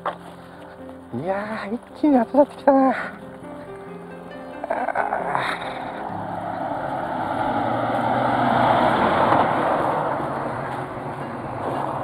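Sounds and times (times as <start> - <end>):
large truck driving past: 3.2 - 12.0.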